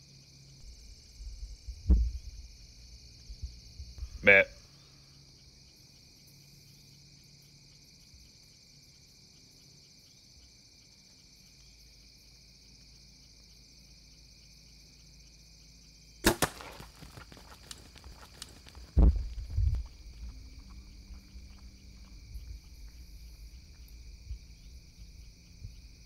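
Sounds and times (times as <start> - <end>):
bowstring crack: 16.2 - 17.8
snaps and rustles: 16.2 - 19.7.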